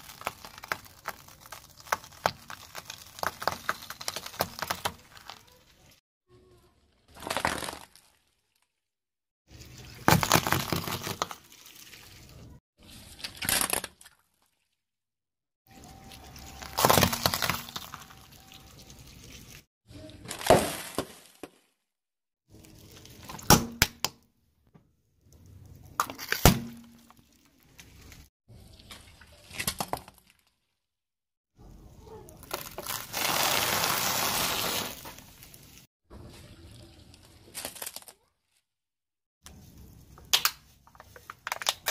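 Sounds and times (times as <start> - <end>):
plastic object cracking: 0.0 - 5.6, 16.5 - 18.1, 40.2 - 41.9
tyre crushing plastic: 0.0 - 5.6, 9.9 - 11.5, 15.8 - 18.4, 32.4 - 35.8.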